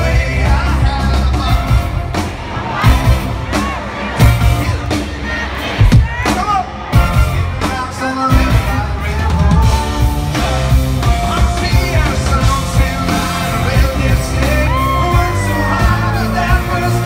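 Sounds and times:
live country-rock band: 0:00.0 - 0:17.0
male lead vocal: 0:00.0 - 0:17.0.

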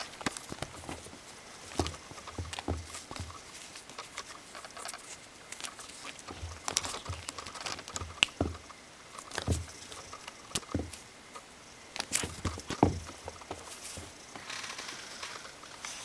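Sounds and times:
kittens scuffling on carpet: 0:00.0 - 0:08.6, 0:12.0 - 0:14.2.

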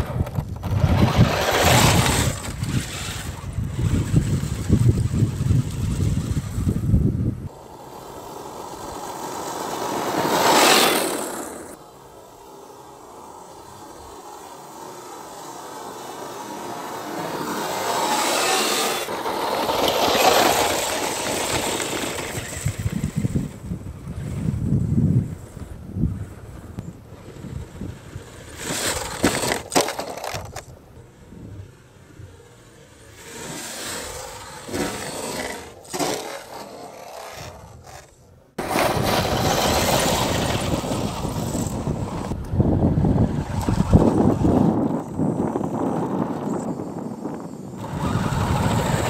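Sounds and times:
wind buffeting microphone: 0:00.0 - 0:07.5, 0:21.5 - 0:29.5, 0:38.6 - 0:49.0
toy truck scraping and tumbling: 0:00.0 - 0:49.0.

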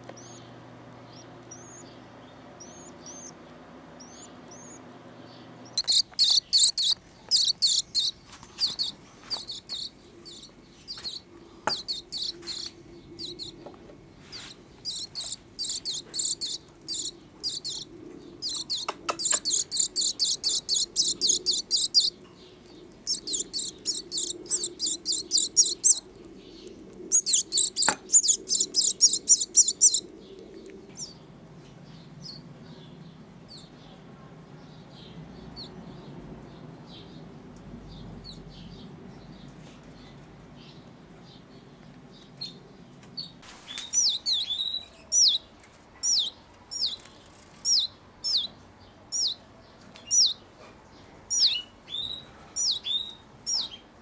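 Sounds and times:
chick cheeping: 0:00.1 - 0:03.4, 0:04.0 - 0:13.7, 0:14.3 - 0:22.2, 0:23.0 - 0:26.1, 0:27.1 - 0:30.1, 0:44.0 - 0:47.0, 0:47.6 - 0:49.4, 0:50.1 - 0:50.4, 0:51.3 - 0:53.8.

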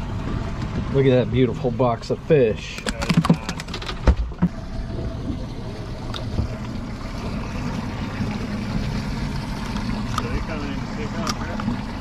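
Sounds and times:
sea noise: 0:00.0 - 0:12.0
wind: 0:00.0 - 0:12.0.

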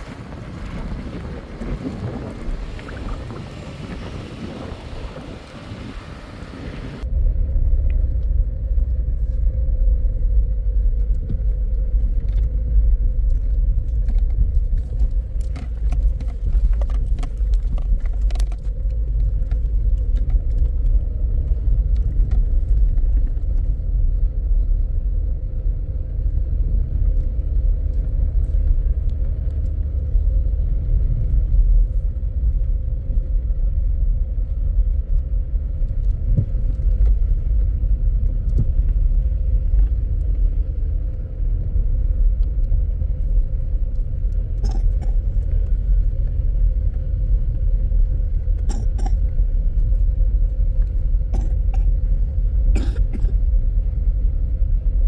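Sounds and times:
car driving on dirt track: 0:00.0 - 0:55.0.

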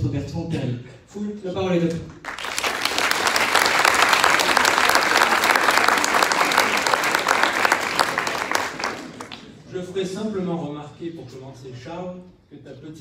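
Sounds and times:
audience applause: 0:02.2 - 0:09.6.

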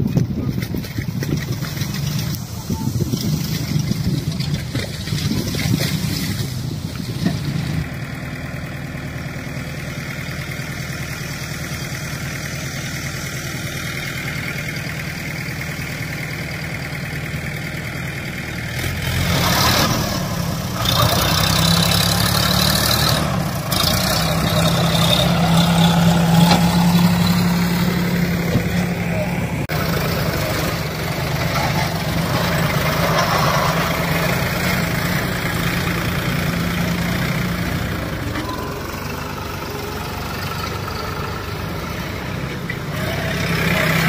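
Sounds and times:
trolley dumping soil: 0:00.0 - 0:07.9, 0:18.7 - 0:39.6
tractor engine running: 0:00.0 - 0:44.0.

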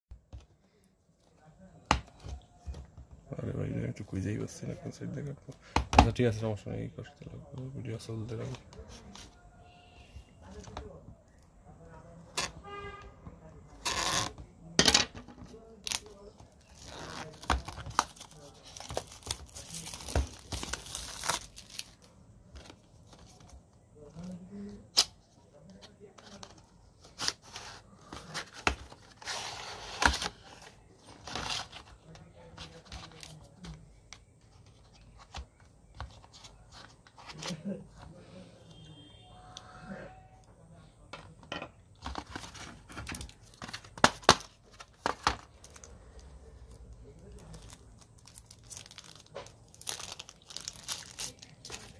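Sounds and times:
plastic shrink-wrap crinkling: 0:15.8 - 0:22.1, 0:42.3 - 0:51.9
light scratching and handling: 0:25.3 - 0:38.3.

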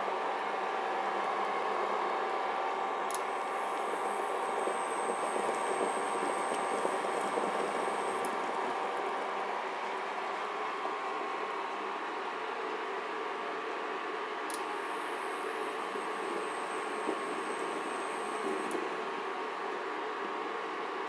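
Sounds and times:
cooling fan whirring: 0:00.0 - 0:21.0
faint high whine: 0:01.5 - 0:09.2, 0:14.6 - 0:19.3
water boiling in pot: 0:03.2 - 0:11.0, 0:14.6 - 0:19.7.

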